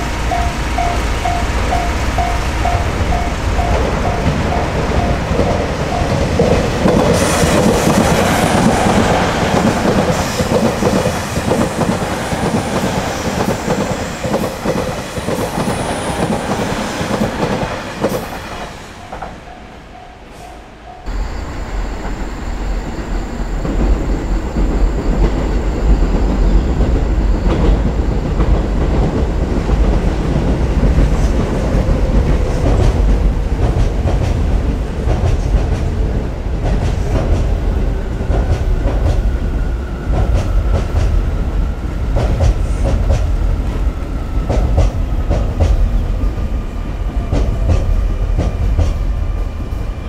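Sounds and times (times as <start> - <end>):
train rumbling past: 0.0 - 50.0.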